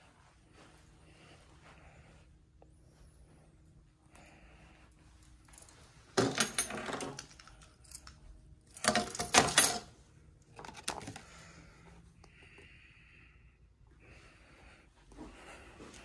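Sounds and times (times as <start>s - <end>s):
items clattering on a tray: 6.2s - 7.6s, 8.8s - 9.9s.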